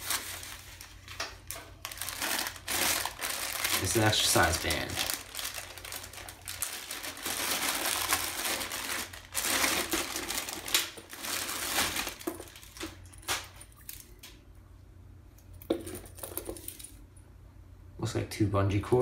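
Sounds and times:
plastic bag crinkling: 0.0s - 14.2s.

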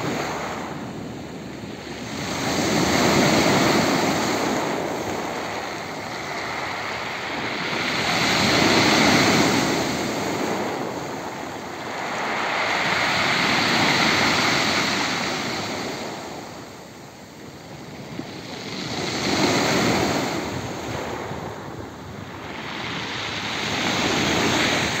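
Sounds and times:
surf washing up pebble beach: 0.0s - 25.0s.

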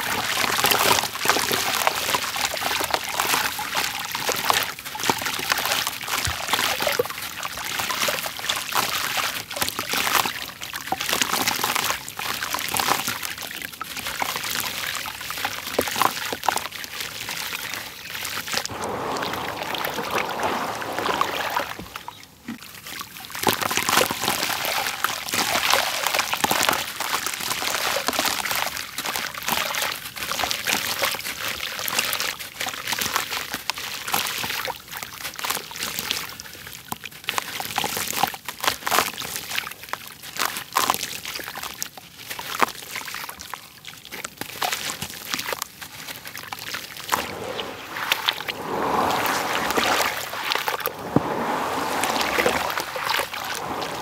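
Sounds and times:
grains splashing into water: 18.7s - 22.2s, 47.0s - 54.0s.

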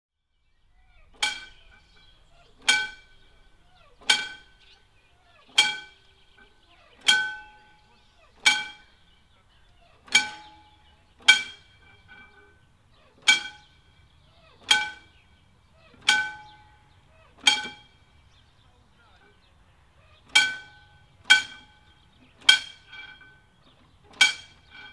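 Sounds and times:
railway crossing bell striking: 10.1s - 14.1s, 20.4s - 23.6s.

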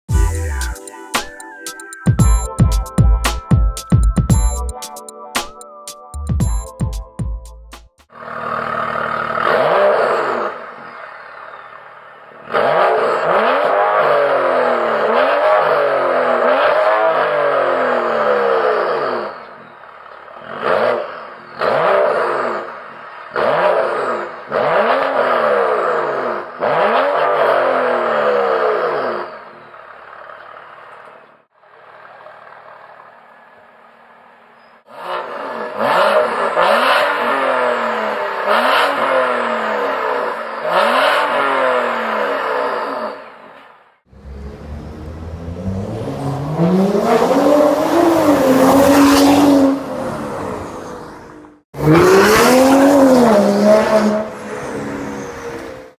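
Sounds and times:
car engine revving: 8.1s - 29.6s, 34.9s - 43.4s, 44.1s - 56.0s.

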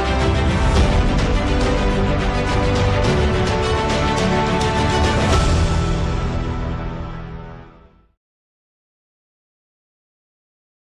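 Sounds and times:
music with a steady beat: 0.0s - 7.4s.

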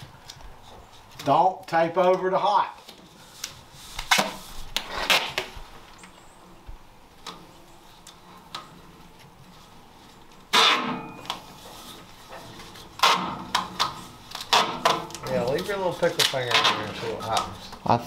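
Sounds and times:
duct tape ripping off roll: 3.9s - 5.6s, 10.5s - 11.9s, 12.8s - 17.6s.

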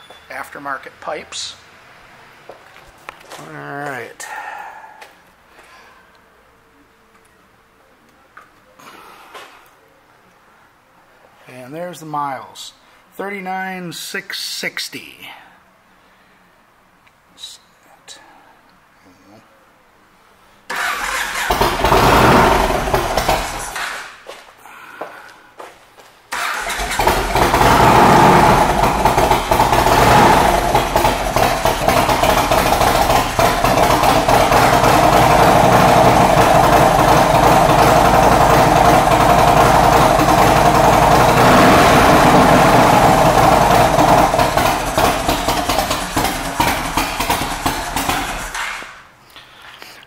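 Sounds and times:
motorcycle engine running: 21.3s - 23.8s, 26.6s - 48.6s.

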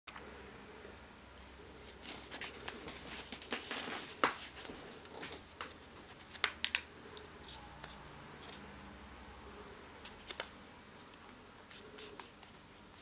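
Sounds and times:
paper rustling and crinkling: 1.4s - 6.8s
paper crackles: 1.8s - 6.6s.

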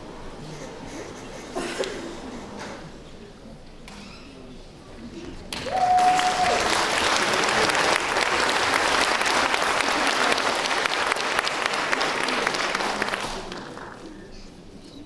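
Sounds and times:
audience applauding: 5.5s - 14.2s.

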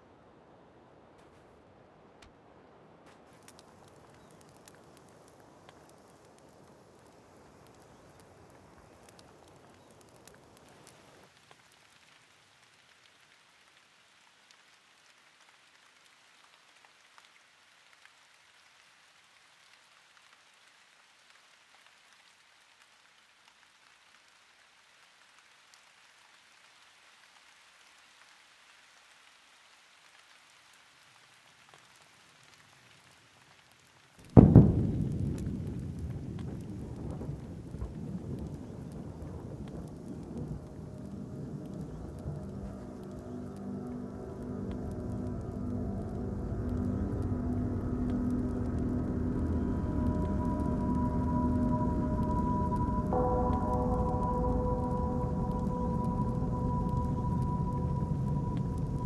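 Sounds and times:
steady rain hissing: 0.0s - 59.0s
thunderclap rumbling: 34.4s - 59.0s.

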